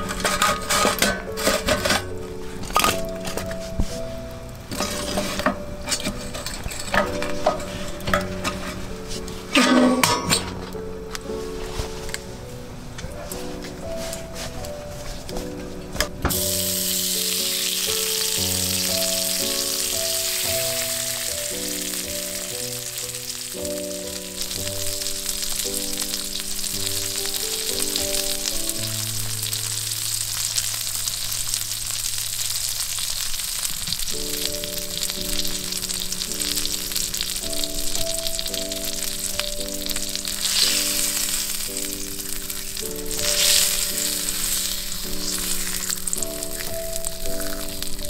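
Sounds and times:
soft background music: 0:00.0 - 0:48.0
food sizzling in hot oil: 0:16.3 - 0:48.0.

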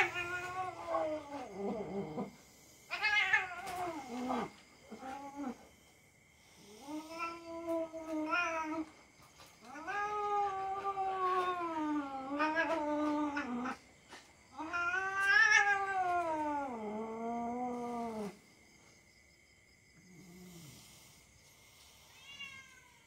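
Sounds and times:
cat yowling: 0:00.0 - 0:02.3, 0:02.9 - 0:05.6, 0:09.7 - 0:13.8, 0:14.6 - 0:18.4, 0:22.2 - 0:23.0.

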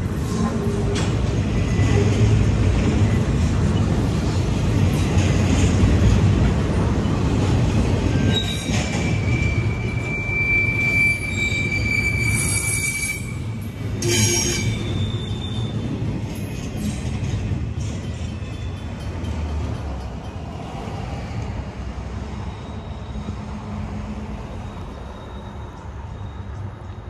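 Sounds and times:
train wheels rumbling on rail: 0:00.0 - 0:27.0
high wheel squeal: 0:08.0 - 0:16.0, 0:22.2 - 0:23.5, 0:24.5 - 0:27.0.

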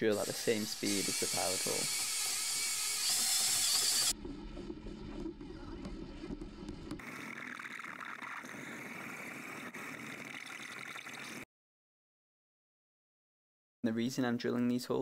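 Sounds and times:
drill boring steel underwater: 0:00.0 - 0:05.4.

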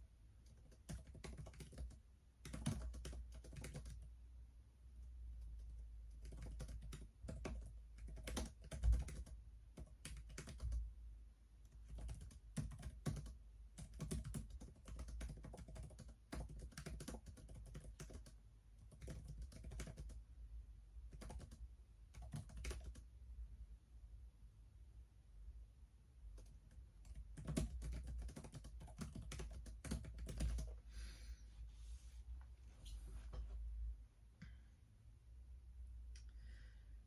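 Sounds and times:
typing on laptop keyboard: 0:00.4 - 0:04.1, 0:05.3 - 0:10.9, 0:11.6 - 0:20.2, 0:21.0 - 0:23.1, 0:26.3 - 0:30.8.

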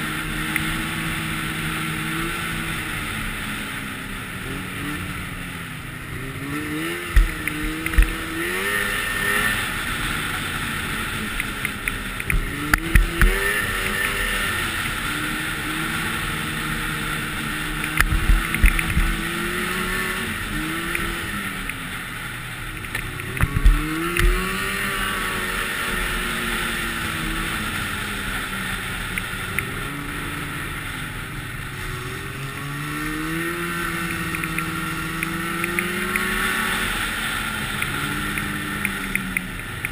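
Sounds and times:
snowmobile engine revving: 0:00.0 - 0:39.9
wind noise on microphone: 0:18.0 - 0:19.4, 0:23.4 - 0:24.8.

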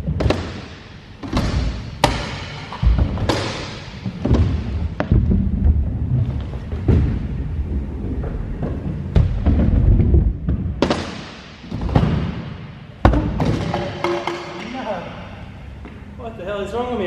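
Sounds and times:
scooter landing knocks and thuds: 0:00.0 - 0:05.9, 0:06.7 - 0:07.4, 0:08.6 - 0:14.3
scooter wheels rolling on ramps: 0:00.0 - 0:12.4.

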